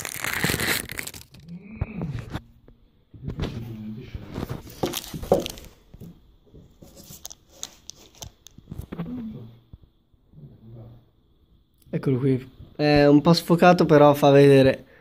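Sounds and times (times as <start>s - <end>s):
paper crinkling and tearing: 0.0s - 1.5s.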